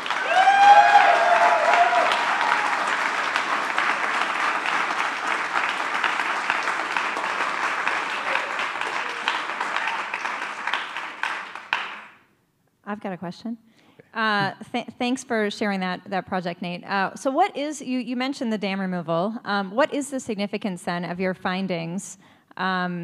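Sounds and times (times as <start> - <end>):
audience applauding: 0.0 - 12.2.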